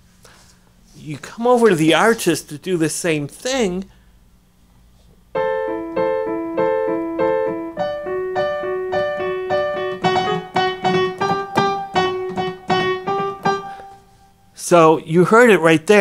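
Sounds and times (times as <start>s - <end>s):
rock piano riff: 5.3s - 14.5s.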